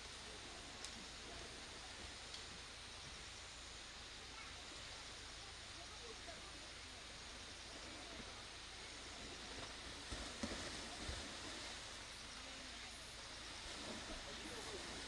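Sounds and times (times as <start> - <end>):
distant water splashes: 4.1 - 15.0.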